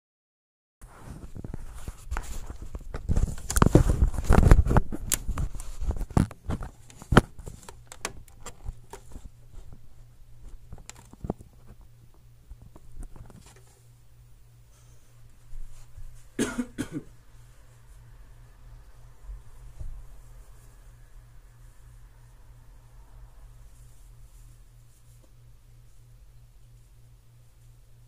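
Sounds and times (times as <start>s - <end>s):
handling noise rustling: 0.8s - 14.0s
steady low hum: 0.8s - 28.0s.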